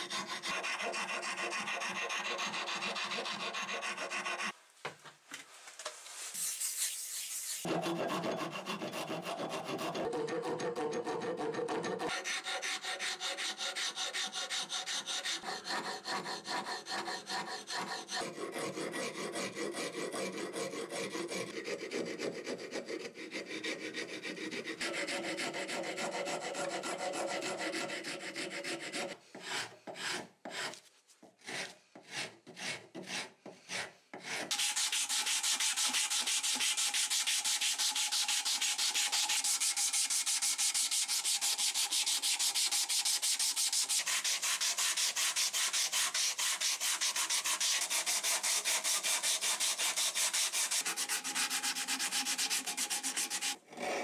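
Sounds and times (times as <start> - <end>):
rasp filing wood: 0.0 - 4.6, 6.4 - 54.0
sandpaper rubbing on wood: 0.0 - 4.6, 6.2 - 10.1, 30.0 - 53.6.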